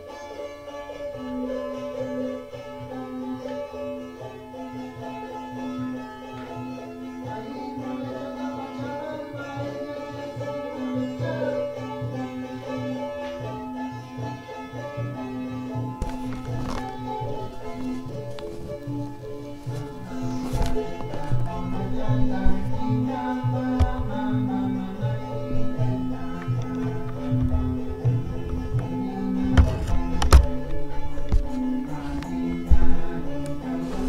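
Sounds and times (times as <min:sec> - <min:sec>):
held drone note: 0:15.9 - 0:34.0.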